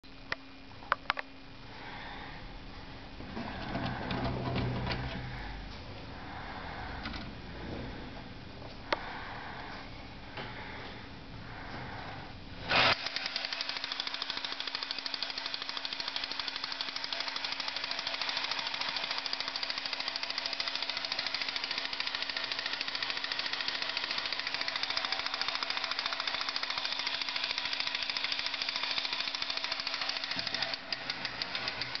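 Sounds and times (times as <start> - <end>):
small electric motor humming: 12.7 - 32.0
toy gears clattering: 12.7 - 32.0.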